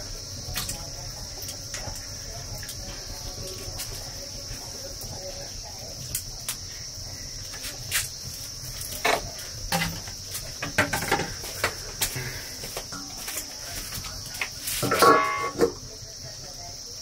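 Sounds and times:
insects droning: 0:00.0 - 0:17.0
firewood clattering: 0:06.0 - 0:15.8
cooking pot knocking: 0:14.8 - 0:15.8.

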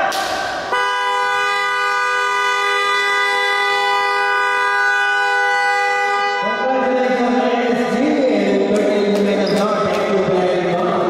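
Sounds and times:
game clock horn blast: 0:00.7 - 0:06.6.

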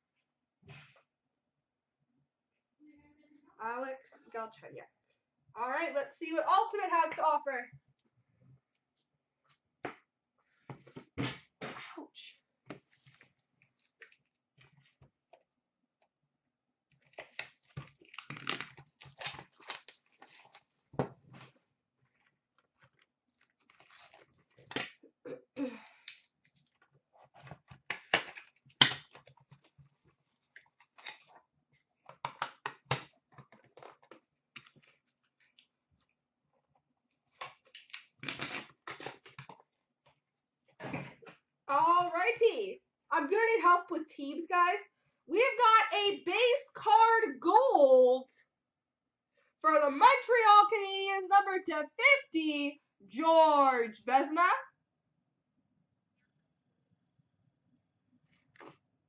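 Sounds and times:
packaging crinkling: 0:17.0 - 0:20.8.

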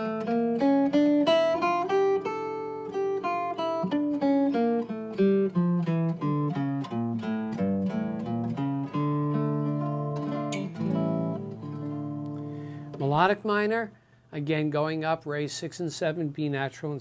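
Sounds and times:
guitar playing single notes: 0:00.0 - 0:13.6.

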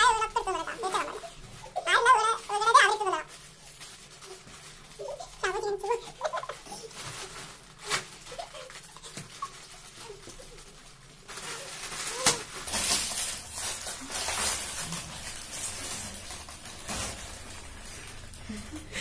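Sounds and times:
chip packets crinkling: 0:00.0 - 0:19.0
chips crunching: 0:07.5 - 0:18.9.

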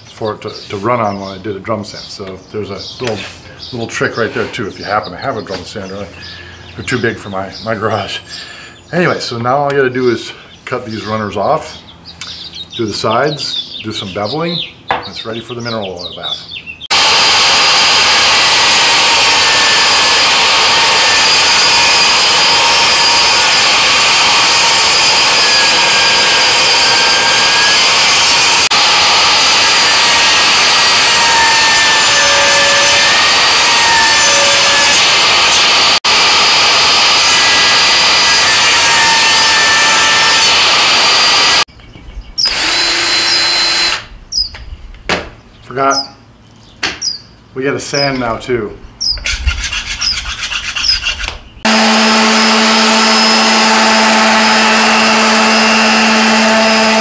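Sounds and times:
cordless drill whirring: 0:16.9 - 0:41.7, 0:42.4 - 0:44.1, 0:51.6 - 0:57.0
table saw cutting wood: 0:16.9 - 0:41.7, 0:42.4 - 0:44.1, 0:49.3 - 0:57.0.

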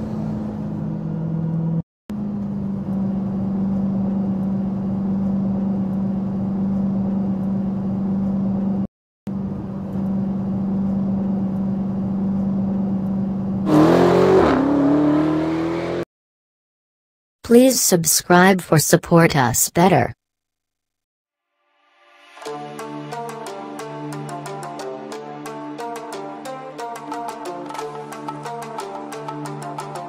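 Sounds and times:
car engine running and revving: 0:00.0 - 0:16.0.

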